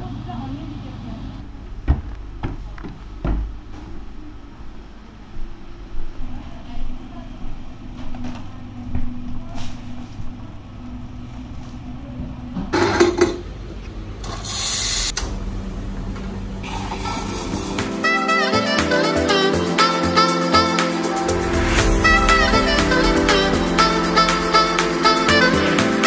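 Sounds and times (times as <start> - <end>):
espresso machine hiss bursts: 14.3 - 15.1
low steady hum: 15.1 - 17.8.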